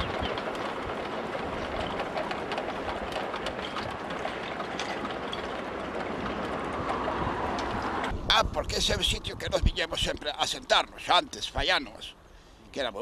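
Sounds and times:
wind rumble on microphone: 0.0s - 10.7s
wind rushing: 6.6s - 10.3s.

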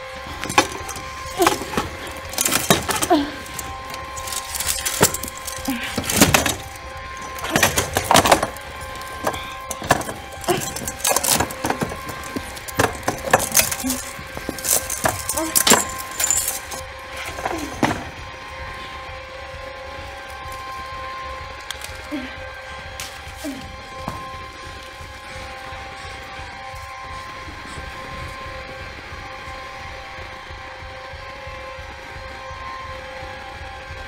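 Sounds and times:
steady drone: 0.0s - 34.0s
metal chain rattling: 0.4s - 18.2s.

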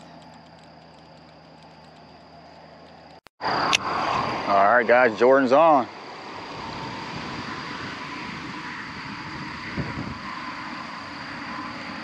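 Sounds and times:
faint thin whine: 0.0s - 12.0s
wind buffeting microphone: 6.2s - 12.0s.

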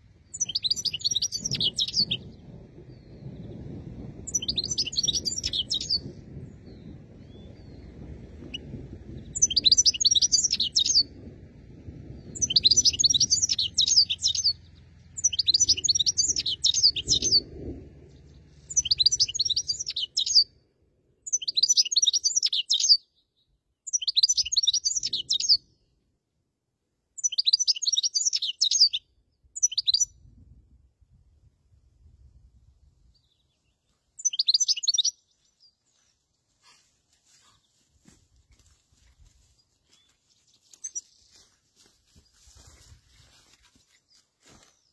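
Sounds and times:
goldfinch twittering song: 0.3s - 3.2s, 4.3s - 6.1s, 6.7s - 11.1s, 12.2s - 17.4s, 18.7s - 20.5s, 21.3s - 23.0s, 23.9s - 25.6s, 27.2s - 29.0s, 29.6s - 30.1s, 34.2s - 35.7s.

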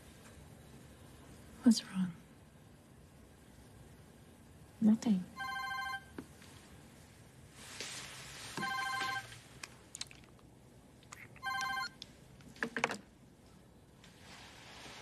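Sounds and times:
phone ringtone: 5.4s - 6.1s, 8.6s - 9.3s, 11.4s - 12.0s
soft rustles: 6.4s - 9.5s, 13.4s - 15.0s.

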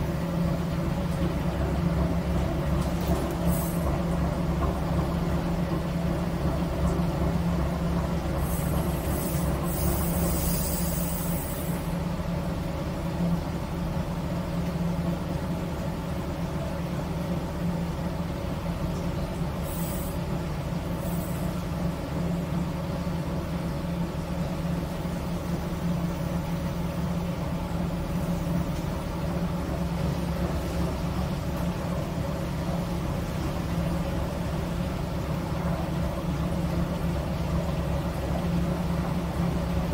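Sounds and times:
diesel engine low hum: 0.0s - 39.9s
hiss: 3.4s - 3.9s, 8.4s - 12.0s, 19.6s - 20.2s, 21.0s - 21.6s.

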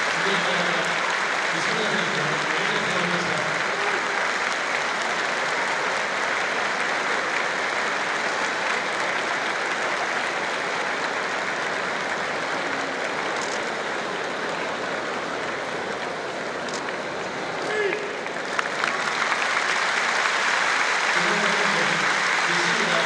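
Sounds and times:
crowd applauding: 0.0s - 23.0s.

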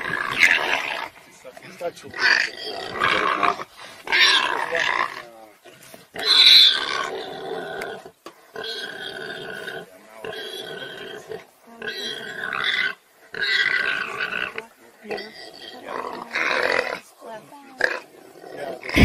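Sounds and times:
warthog squealing in distress: 2.2s - 5.2s, 6.2s - 7.8s.

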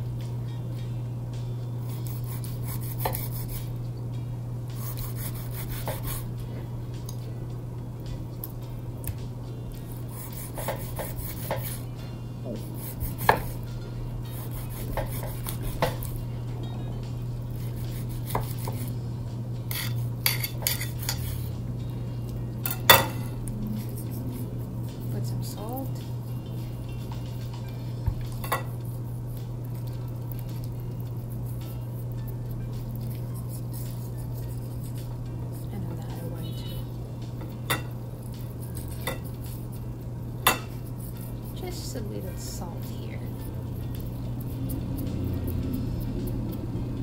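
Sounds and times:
steady low hum: 0.0s - 47.0s
knife scoring fish skin: 1.9s - 3.6s, 17.6s - 18.9s
knife clinking on ceramic plate: 19.7s - 21.3s, 22.7s - 23.3s, 40.4s - 40.8s.

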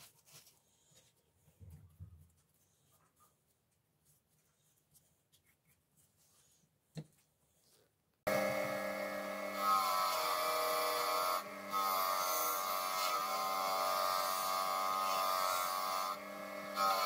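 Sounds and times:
bench grinder motor whine: 8.3s - 17.0s.

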